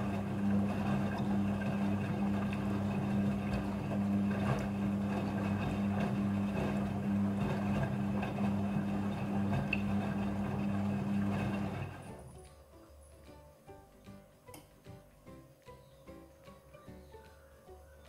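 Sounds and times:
washing machine running: 0.0s - 13.2s.

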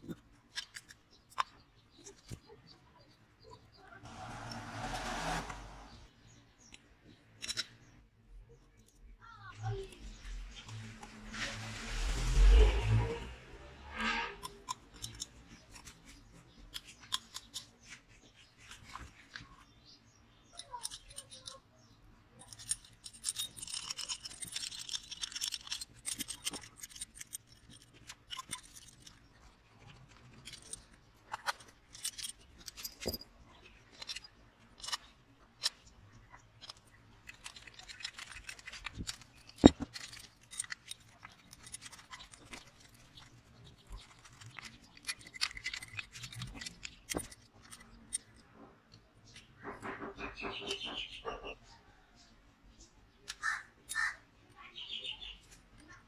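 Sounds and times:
metal parts clicking and scraping: 0.0s - 51.6s, 52.2s - 56.0s
rubbing or brushing: 4.0s - 6.1s, 10.4s - 14.6s.

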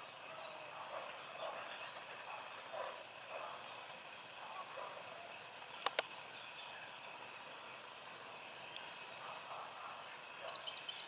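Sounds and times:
faint bird calls: 0.0s - 11.0s
outdoor background noise: 0.0s - 11.0s
sharp clicks: 5.8s - 6.1s.

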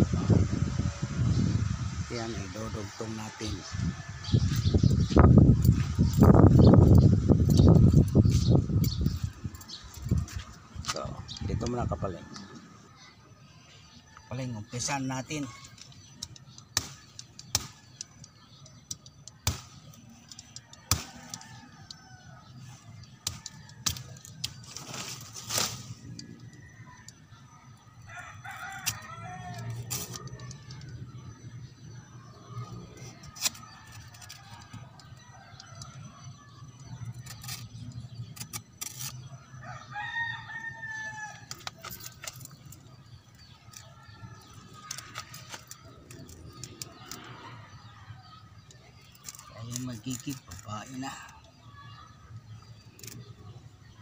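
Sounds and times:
rooster crowing: 26.2s - 30.5s, 39.4s - 42.0s.

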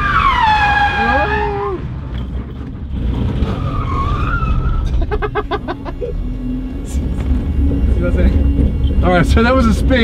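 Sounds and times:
tyre squeal: 0.0s - 1.8s, 3.3s - 5.1s
car engine and road rumble: 0.0s - 10.0s.

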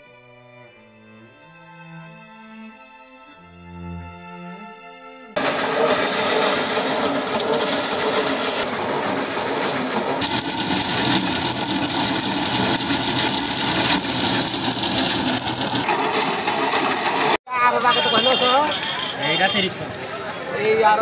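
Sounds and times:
thresher drum whirring and rattling: 5.4s - 17.4s.

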